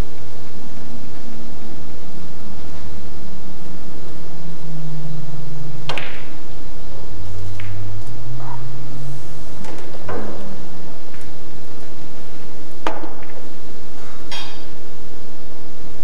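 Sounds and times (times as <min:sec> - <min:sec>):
low background hum: 0:00.0 - 0:16.0
cue striking ball: 0:05.8 - 0:06.6, 0:07.5 - 0:08.7, 0:09.6 - 0:11.4, 0:12.8 - 0:14.8.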